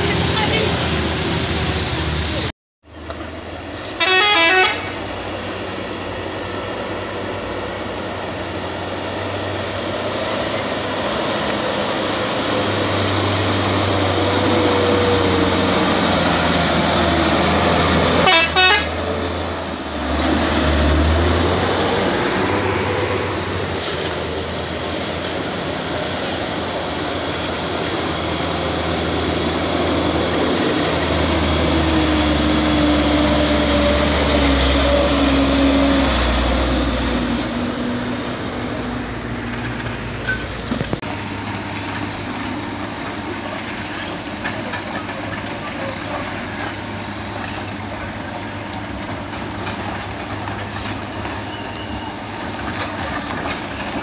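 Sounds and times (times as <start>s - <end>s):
truck engines under load: 0.0s - 54.0s
horn tooting: 3.9s - 5.0s, 18.1s - 19.1s.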